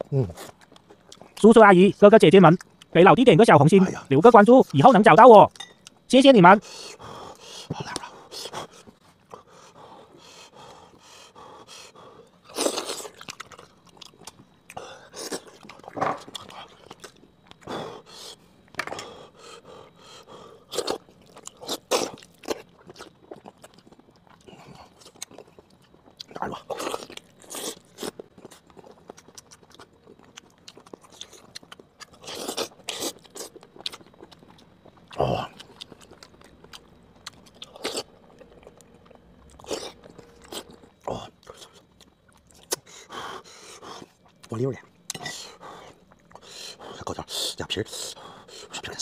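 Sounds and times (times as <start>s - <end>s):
chewing and biting: 12.5s - 17.7s, 20.7s - 46.9s.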